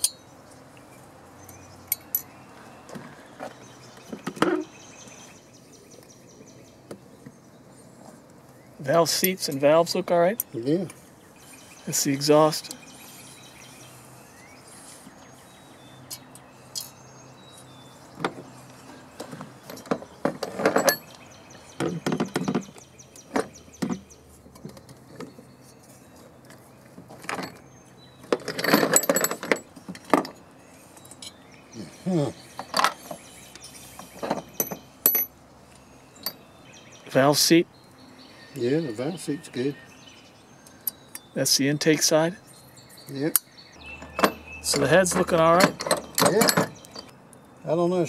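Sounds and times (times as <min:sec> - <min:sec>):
metal parts clinking and clattering: 0:19.6 - 0:21.2, 0:27.1 - 0:27.6, 0:28.2 - 0:30.4, 0:32.6 - 0:35.3, 0:44.0 - 0:47.1.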